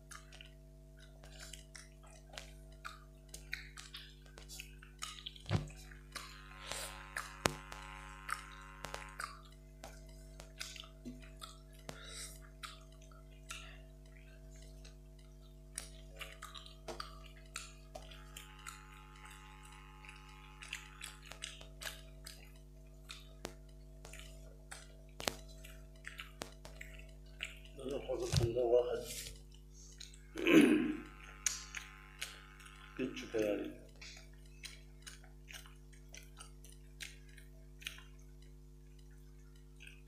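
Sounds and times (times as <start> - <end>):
chewing and lip-smacking: 0.0 - 40.0
steady low hum: 0.0 - 40.0
fingers mixing rice on metal plates: 1.2 - 30.3.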